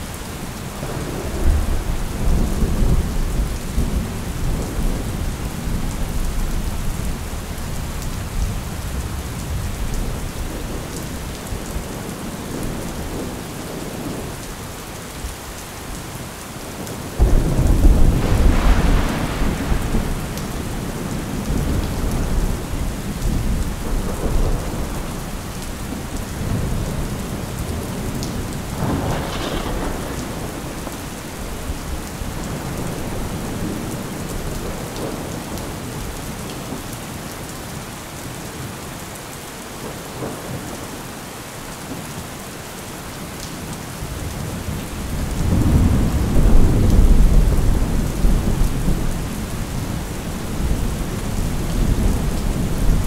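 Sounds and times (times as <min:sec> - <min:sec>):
steady rain: 0:00.0 - 0:53.0
rolling thunder: 0:17.2 - 0:35.7, 0:44.7 - 0:53.0.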